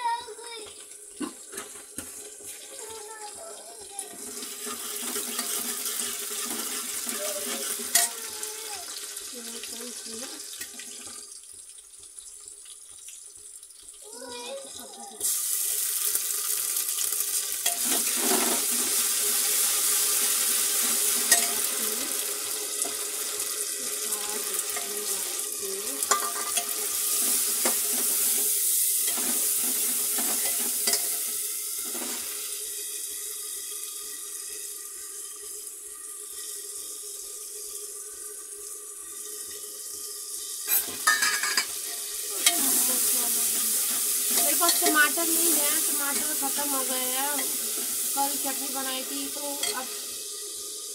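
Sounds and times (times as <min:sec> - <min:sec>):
food sizzling in hot oil: 0:00.0 - 0:50.9
metal ladle scraping pot: 0:04.2 - 0:08.3, 0:40.7 - 0:48.0.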